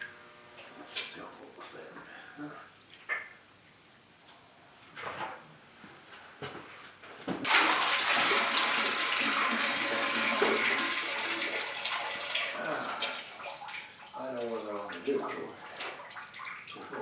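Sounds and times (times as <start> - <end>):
tap water running into sink: 7.5 - 17.0.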